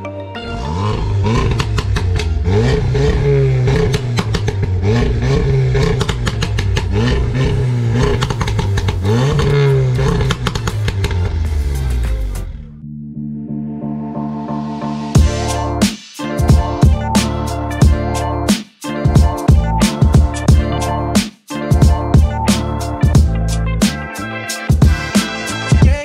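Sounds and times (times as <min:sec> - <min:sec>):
car engine revving: 0:00.4 - 0:12.8
exhaust crackles and pops: 0:01.2 - 0:12.7.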